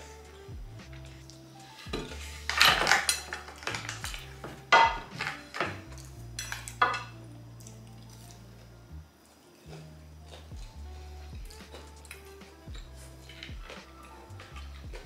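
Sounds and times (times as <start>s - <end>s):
soft background music: 0.0s - 15.0s
crunchy food being eaten: 7.6s - 15.0s.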